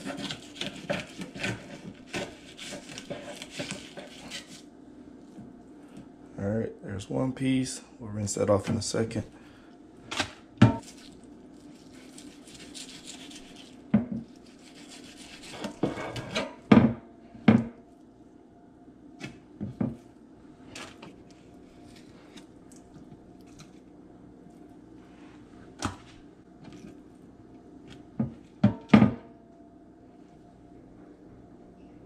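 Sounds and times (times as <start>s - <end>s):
scraping on cutting board: 0.0s - 4.6s, 14.4s - 16.6s.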